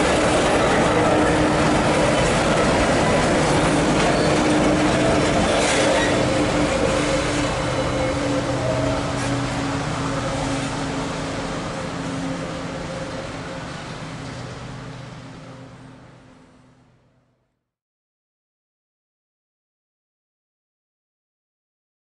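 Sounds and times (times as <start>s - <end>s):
freight wagons rolling on rails: 0.0s - 16.2s.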